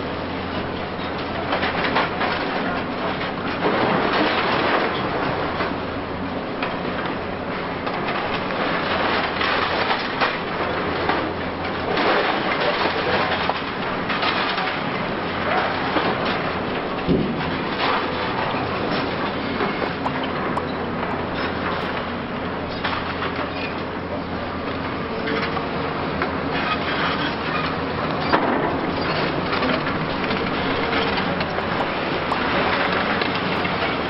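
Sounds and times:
excavator engine humming: 18.0 - 34.0.

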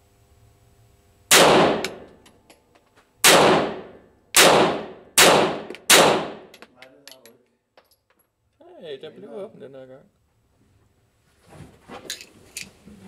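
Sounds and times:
pistol shots with echo: 1.3 - 2.1, 3.2 - 6.5.

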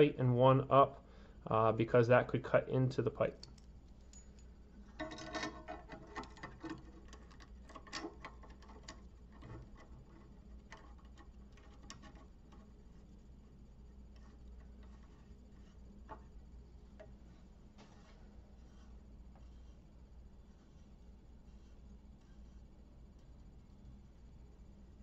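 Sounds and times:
low steady hum: 0.0 - 25.0
faint metal clicks and rattling: 3.2 - 17.2.

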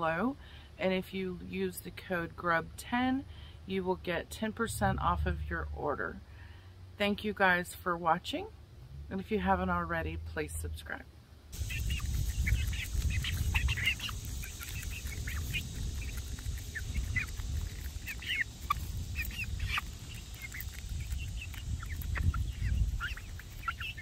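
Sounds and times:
low rumble: 4.4 - 7.0, 8.7 - 11.0
young hens chirping: 11.6 - 24.0.

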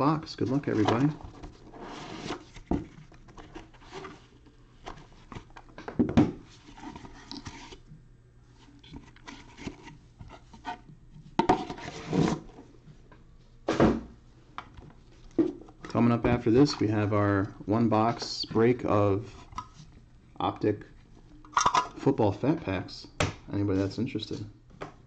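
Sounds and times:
cardboard lid rubbing and sliding: 0.7 - 2.7.

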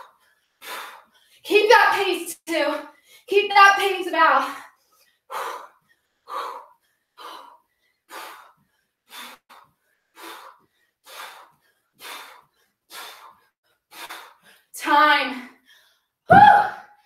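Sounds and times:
woman breathing hard: 0.0 - 1.4, 4.7 - 14.7.

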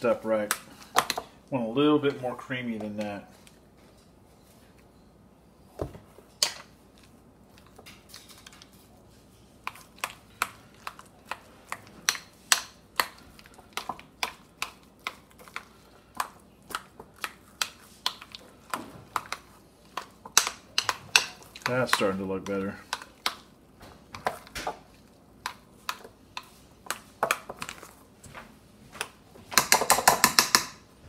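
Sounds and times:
spoon mashing in ceramic bowl: 9.6 - 30.8.

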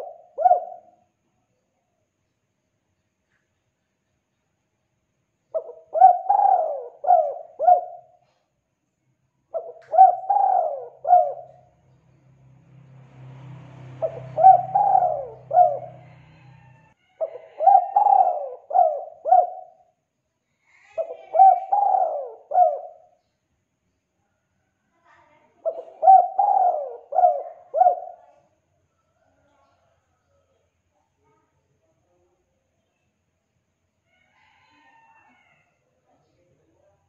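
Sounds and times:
dove cooing: 0.0 - 1.0, 5.6 - 8.2, 9.5 - 11.7, 14.0 - 19.9, 20.9 - 23.1, 25.6 - 28.4.

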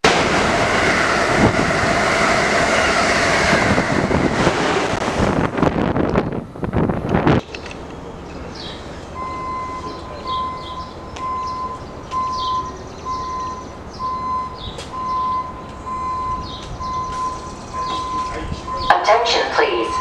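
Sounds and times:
birds chirping: 7.5 - 20.0
vehicle backup alarm beeping: 8.4 - 20.0.

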